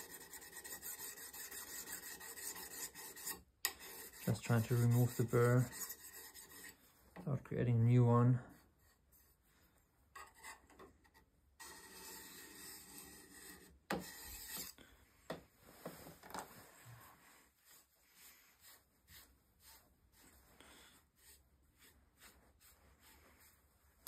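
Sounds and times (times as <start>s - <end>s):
honing paddle rubbing on steel: 0.0s - 6.9s.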